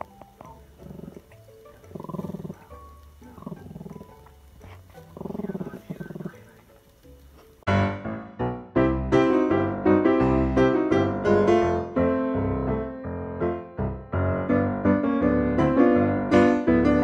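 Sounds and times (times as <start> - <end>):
small dog growling: 0.0 - 6.5
faint background music: 0.0 - 17.0.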